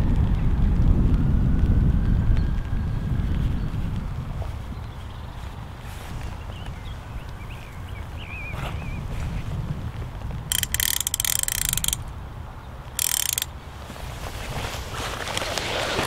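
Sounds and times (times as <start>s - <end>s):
wind rumble on microphone: 0.0s - 16.0s
fishing reel ratchet clicking: 10.5s - 12.1s, 13.0s - 13.5s.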